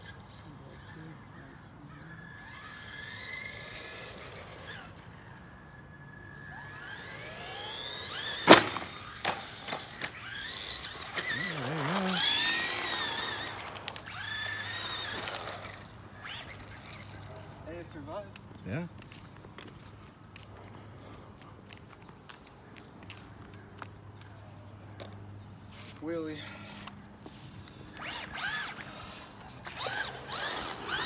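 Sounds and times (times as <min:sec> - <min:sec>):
electric motor whining: 0:01.9 - 0:17.3, 0:27.3 - 0:31.0.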